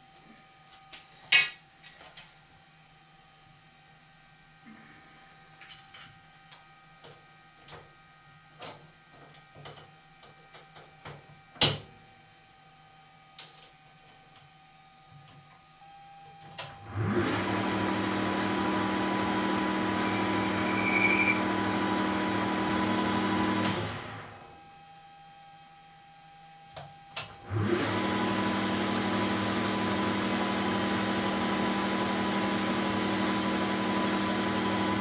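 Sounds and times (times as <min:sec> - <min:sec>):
lathe running: 0:17.0 - 0:24.2.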